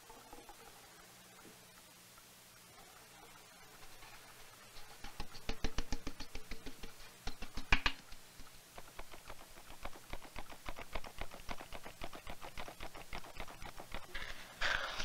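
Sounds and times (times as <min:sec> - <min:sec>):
flour sifter ticking: 0:03.0 - 0:15.0.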